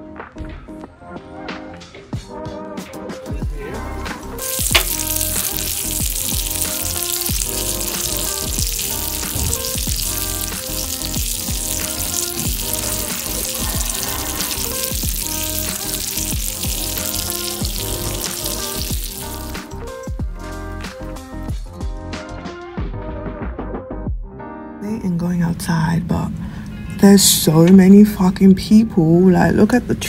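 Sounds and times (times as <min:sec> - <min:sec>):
background music: 0:00.0 - 0:29.7
steak sizzling: 0:04.0 - 0:20.8.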